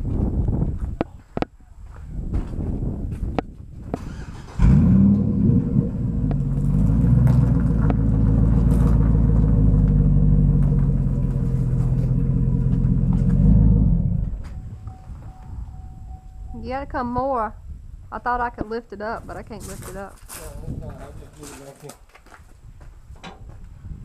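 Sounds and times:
truck engine starting and running: 3.8s - 16.6s.

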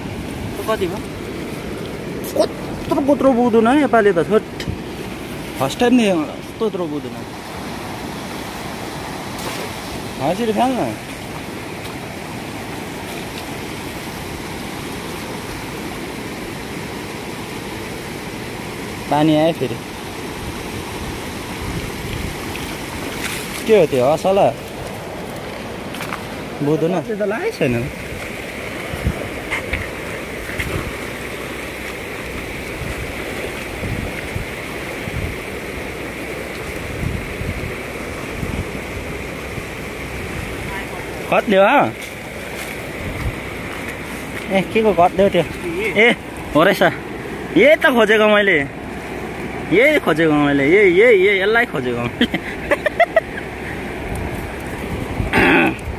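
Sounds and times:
river rushing: 0.0s - 55.9s
cast net splashing into water: 9.3s - 10.0s, 22.4s - 23.7s.

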